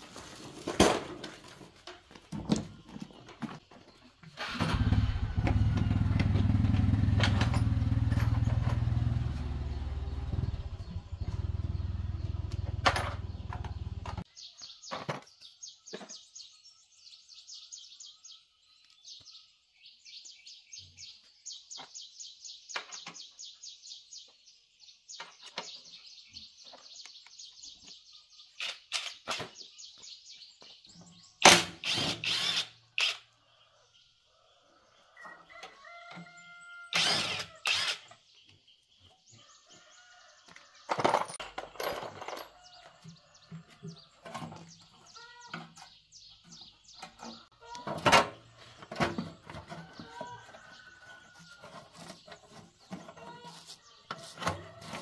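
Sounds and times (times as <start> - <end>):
small motorcycle engine running: 4.5 - 14.2
metal toolbox clattering: 40.9 - 42.6.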